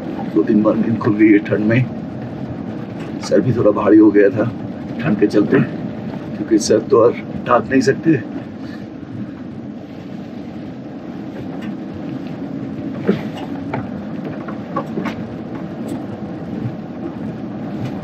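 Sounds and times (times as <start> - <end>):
car engine and tyres rumbling: 0.0 - 18.0
knocks and rattles: 2.2 - 3.4, 11.4 - 18.0.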